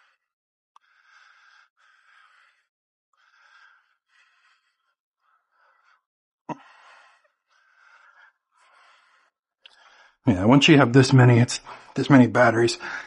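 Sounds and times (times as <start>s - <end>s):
man breathing hard: 0.0s - 10.2s, 12.8s - 13.0s.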